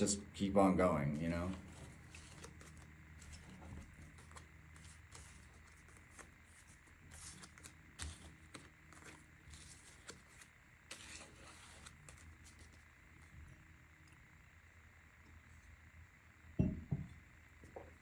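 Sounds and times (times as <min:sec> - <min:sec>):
cards clicking and rustling: 0:01.4 - 0:12.8
cards shuffling: 0:01.4 - 0:12.8.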